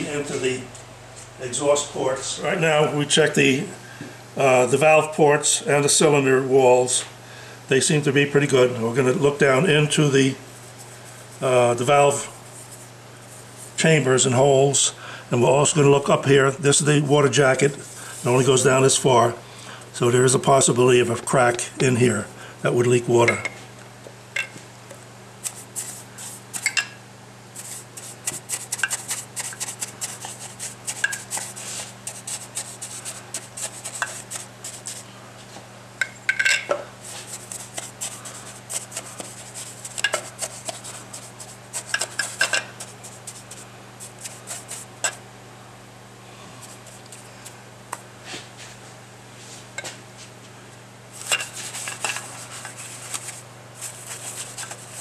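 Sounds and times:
paintbrush scrubbing on metal: 25.4 - 26.8, 27.5 - 35.1, 37.0 - 45.2, 46.6 - 47.6, 51.2 - 55.0.

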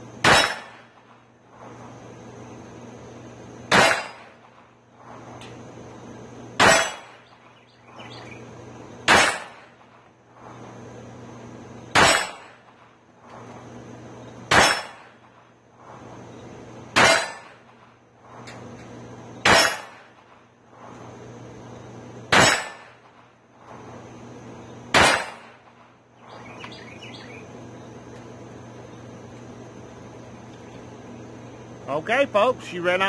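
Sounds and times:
pistol shots: 0.2 - 1.2, 3.7 - 4.7, 6.6 - 7.5, 9.0 - 10.0, 11.9 - 12.9, 14.5 - 15.4, 16.9 - 17.9, 19.4 - 20.4, 22.3 - 23.3, 24.9 - 25.9.

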